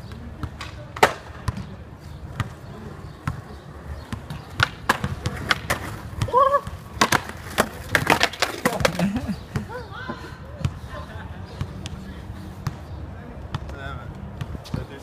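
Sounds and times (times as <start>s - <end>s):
skateboard wheels rolling: 0.4s - 9.6s
skateboard deck clacking: 0.5s - 1.4s, 2.5s - 9.4s
basketball bouncing: 3.2s - 7.2s
skater falling: 4.0s - 9.8s.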